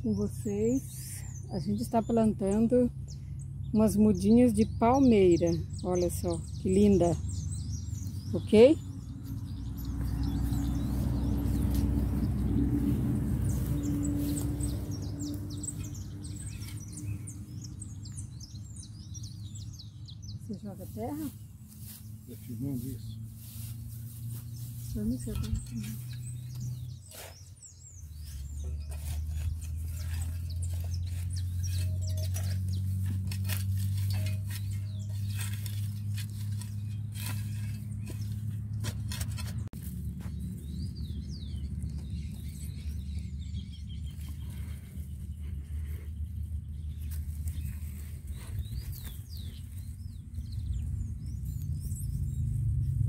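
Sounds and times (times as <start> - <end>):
bird chirps: 0.0 - 12.7, 13.4 - 39.6, 40.2 - 53.0
hoe scraping dry soil: 5.9 - 18.6, 20.6 - 52.4
steady low rumble: 29.3 - 53.0.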